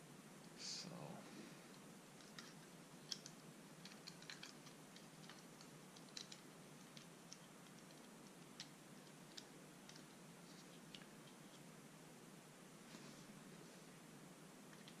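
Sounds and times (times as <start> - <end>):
small plastic clicks: 2.2 - 11.6.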